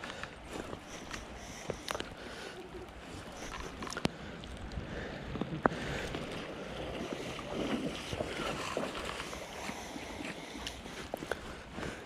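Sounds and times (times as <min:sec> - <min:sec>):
flowing river water: 0:00.0 - 0:12.0.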